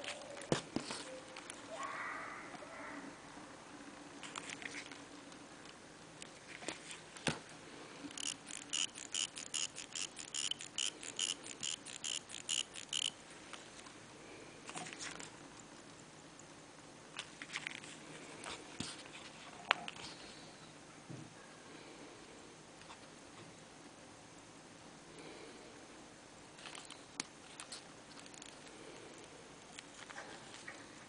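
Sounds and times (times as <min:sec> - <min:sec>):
watch ticking: 0:08.1 - 0:13.2.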